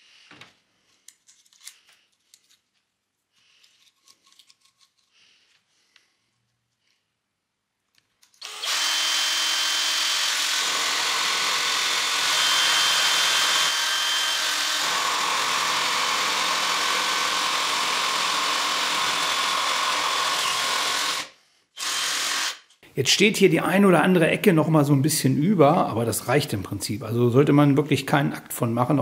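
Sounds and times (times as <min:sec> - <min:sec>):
drill cutting through wood: 0:08.4 - 0:22.8.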